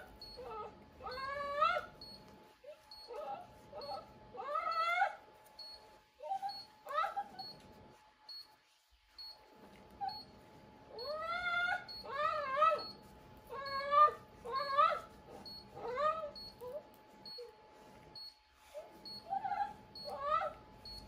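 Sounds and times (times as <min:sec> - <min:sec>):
animal whining cries: 0:00.0 - 0:07.8, 0:09.8 - 0:17.9, 0:18.6 - 0:21.0.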